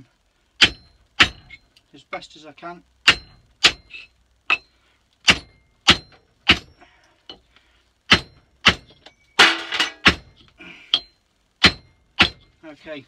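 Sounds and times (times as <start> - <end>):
faint metallic ring: 8.3 - 10.0.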